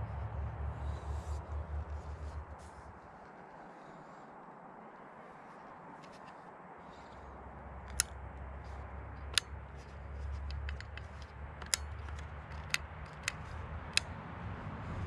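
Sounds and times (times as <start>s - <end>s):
steady low rumble: 0.0s - 15.0s
small clicks from handling rifle: 6.0s - 6.5s, 7.8s - 14.1s.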